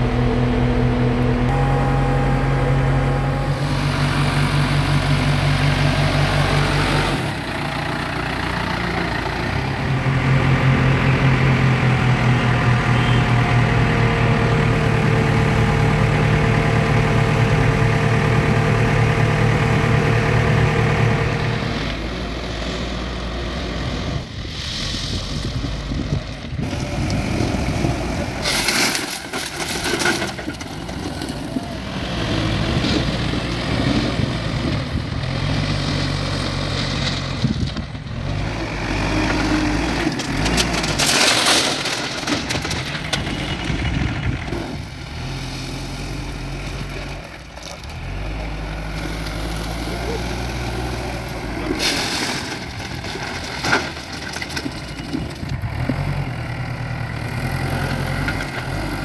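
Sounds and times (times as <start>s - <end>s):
steady whine: 0.0s - 6.5s
diesel engine running: 0.0s - 59.0s.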